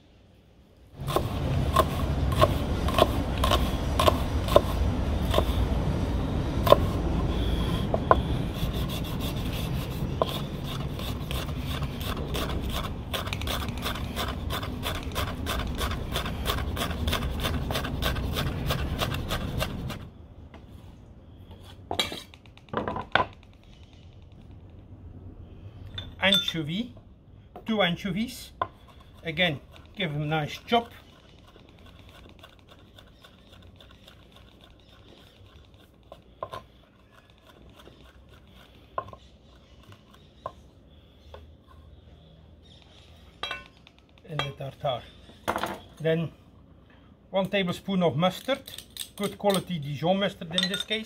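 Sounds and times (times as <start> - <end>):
knife scraping board: 1.0 - 5.7, 6.7 - 20.1, 21.6 - 23.6.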